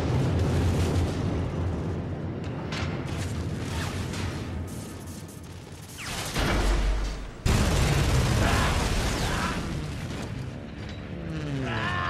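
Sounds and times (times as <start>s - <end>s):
crashing and rumbling: 0.0s - 11.2s
loud blast: 6.0s - 10.0s.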